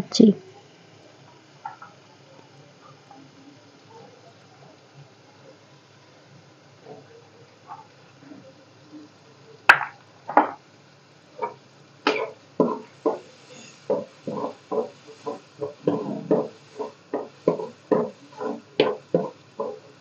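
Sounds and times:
spoon knocking against pan: 11.4s - 13.3s, 13.9s - 19.8s
spoon stirring and scraping pan: 11.4s - 20.0s.

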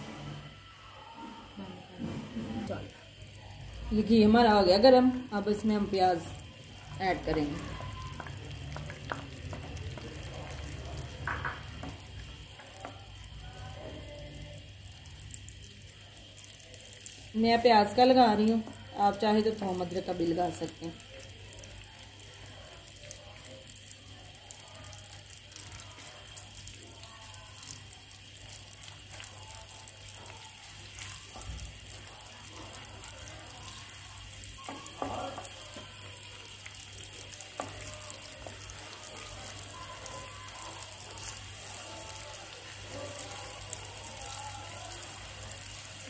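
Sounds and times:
onions sizzling in a frying pan: 0.0s - 46.0s
wooden spoon stirring: 28.4s - 46.0s.

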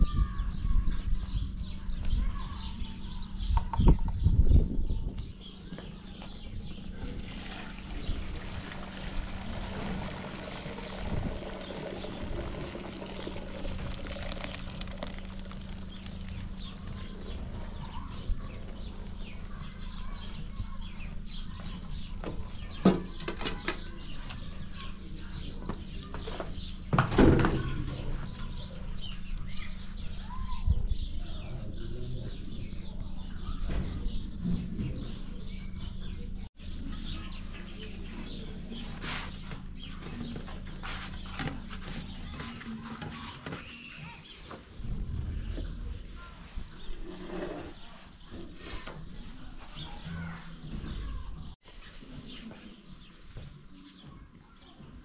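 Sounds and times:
rice pouring into colander: 7.3s - 16.5s.

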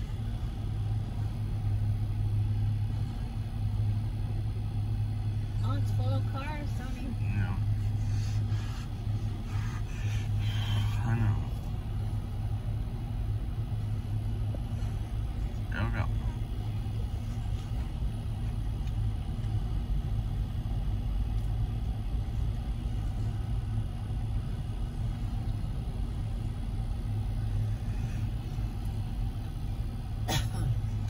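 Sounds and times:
muffled freight train rumble: 0.0s - 31.0s.

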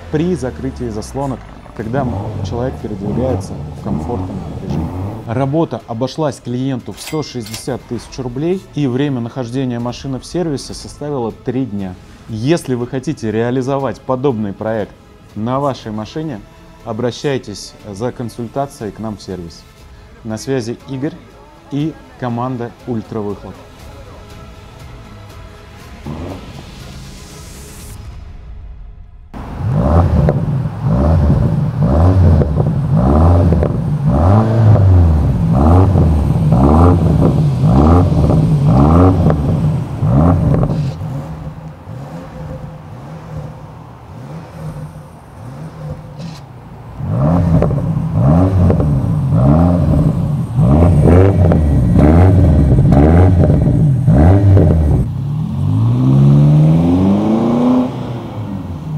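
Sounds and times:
car accelerating away: 0.0s - 6.0s, 25.8s - 28.0s, 29.3s - 58.9s
car engine idling: 0.0s - 28.6s, 29.3s - 58.9s
car engine revving: 0.0s - 28.6s, 29.3s - 58.9s.

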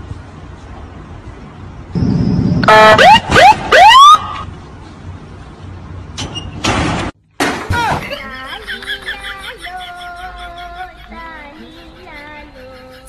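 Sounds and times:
electronic alarm whooping: 2.0s - 4.4s
low background hum: 7.7s - 13.0s.

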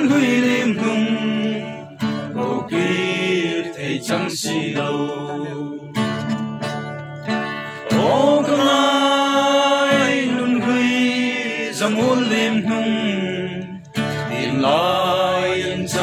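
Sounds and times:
men singing together: 0.0s - 6.0s, 7.8s - 16.0s
strummed acoustic guitar: 0.0s - 16.0s.

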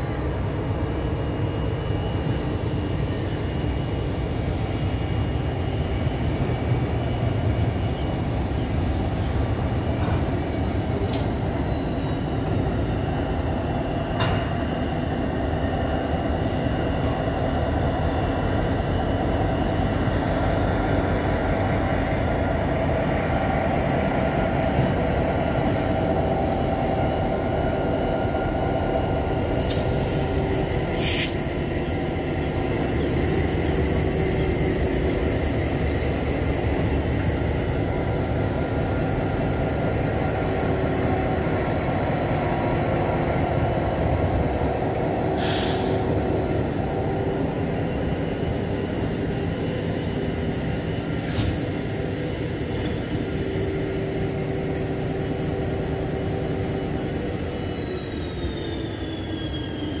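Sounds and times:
short hisses: 31.0s - 31.4s, 45.4s - 46.0s.

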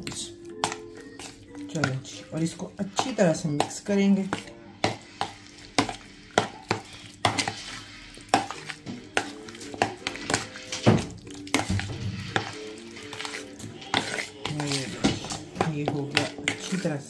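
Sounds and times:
spoon stirring chicken in marinade: 0.0s - 17.0s
spoon knocking plastic bowl: 8.3s - 16.8s.

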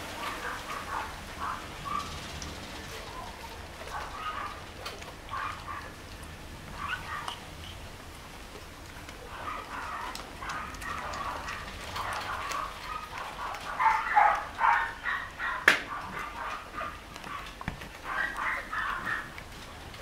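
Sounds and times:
puppies squeaking and whimpering: 6.7s - 8.0s, 9.2s - 19.5s.

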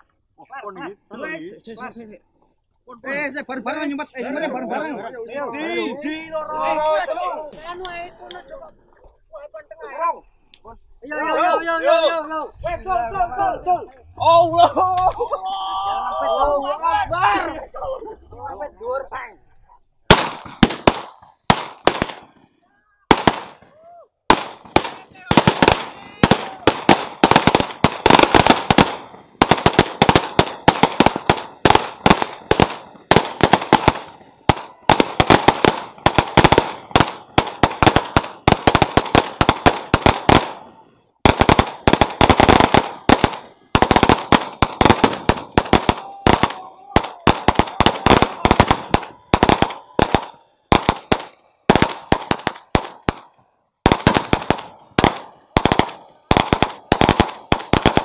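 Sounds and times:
firecrackers banging: 20.0s - 22.5s, 23.1s - 23.7s, 24.3s - 58.0s.

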